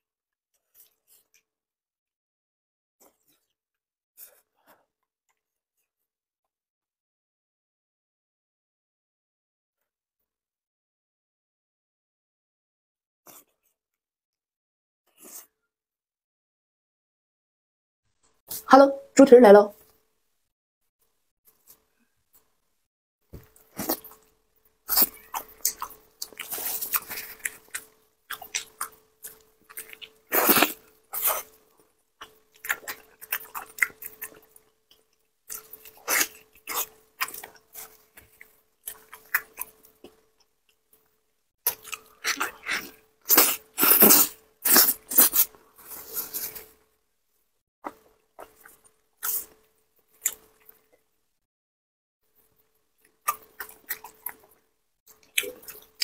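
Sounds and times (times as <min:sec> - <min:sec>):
wet chewing and mouth sounds: 0:23.4 - 0:46.8, 0:47.8 - 0:51.1, 0:52.4 - 0:56.0.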